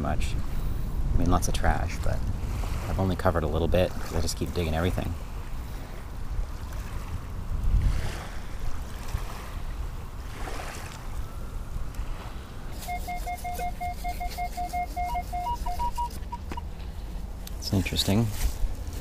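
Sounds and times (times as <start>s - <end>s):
wind rumble: 0.0s - 12.8s
small waves on shore: 0.0s - 19.0s
metal detector beeping: 12.8s - 16.7s.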